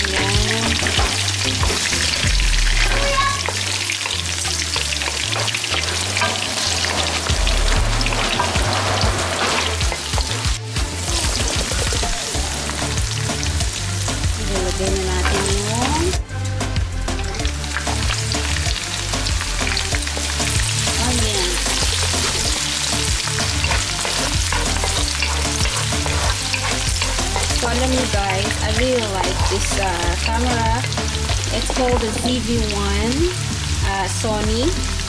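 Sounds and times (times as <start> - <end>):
oil sizzling in a wok: 0.0 - 35.0
wooden spoon stirring and scraping: 21.6 - 32.3.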